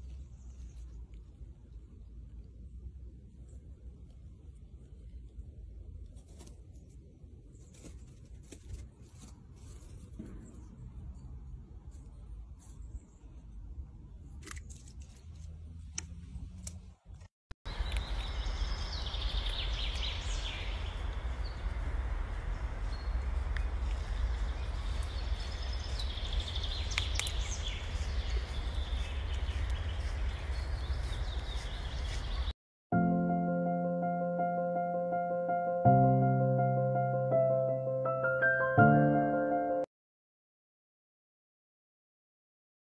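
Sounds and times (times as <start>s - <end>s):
squirrel crunching pine needles: 14.2s - 16.8s, 17.7s - 18.8s, 23.2s - 32.4s
low rumble: 17.7s - 32.5s.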